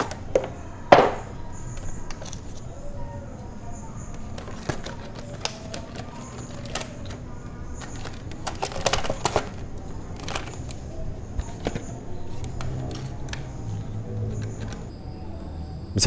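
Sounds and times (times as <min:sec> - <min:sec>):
cardboard and plastic clicks and scrapes: 0:00.0 - 0:02.7, 0:03.9 - 0:14.9.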